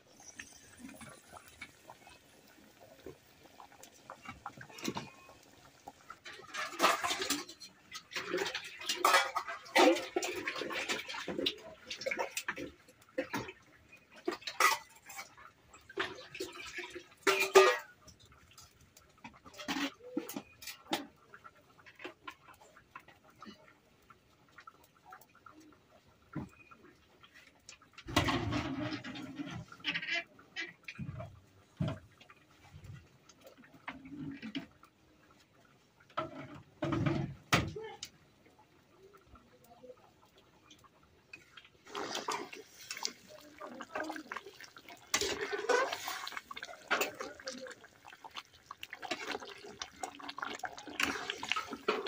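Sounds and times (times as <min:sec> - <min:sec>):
water splashing in a bucket: 0:00.0 - 0:52.0.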